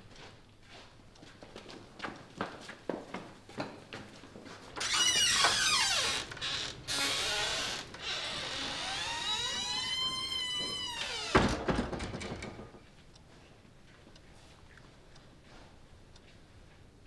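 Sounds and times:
swing doors creaking: 4.8 - 12.8.

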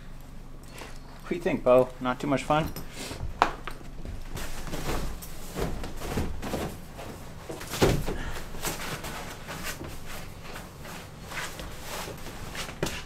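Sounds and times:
foam pads rustling: 2.9 - 13.0.

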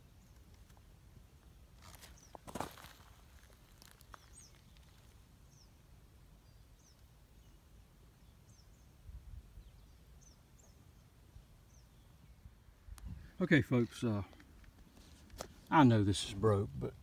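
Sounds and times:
rustle of movement: 0.2 - 5.3, 12.8 - 16.2
small bird chirping: 1.8 - 13.1.

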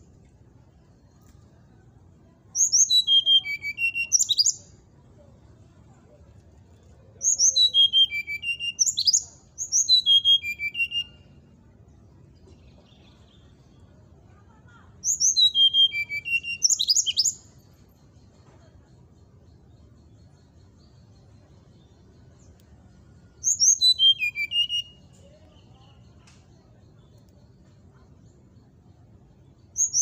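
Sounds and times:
bird whistled song: 2.3 - 4.8, 7.1 - 11.5, 15.0 - 18.2, 19.5 - 27.8, 28.5 - 30.0.

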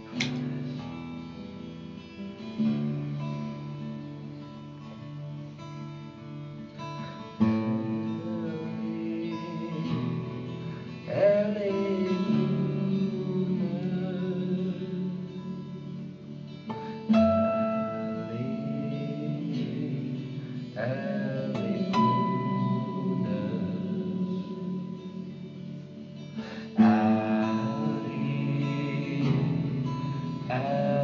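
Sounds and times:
acoustic guitar chords: 0.0 - 31.0
man singing: 7.0 - 31.0.

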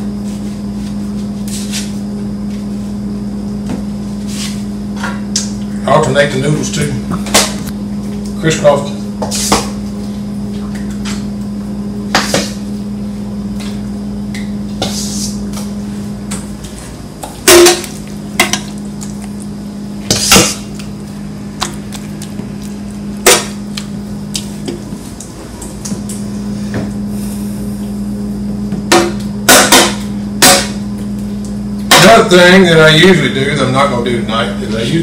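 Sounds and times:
steady low hum: 0.0 - 35.0
utensils knocking on baking pan: 28.9 - 30.8.

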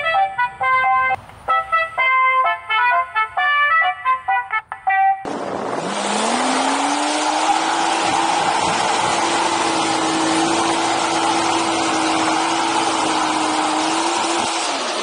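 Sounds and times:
tyre and wind noise: 5.2 - 15.0
car engine at high revs: 5.3 - 15.0.

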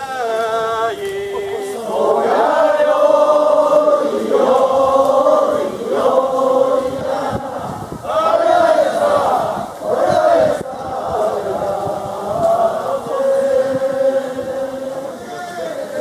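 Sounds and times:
men chanting in held notes: 0.0 - 16.0.

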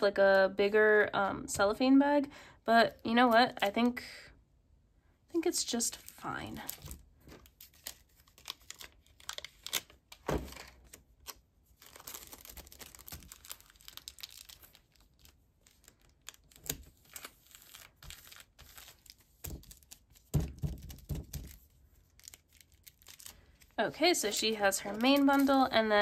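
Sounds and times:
cellophane crinkling and rustling: 5.6 - 26.0.

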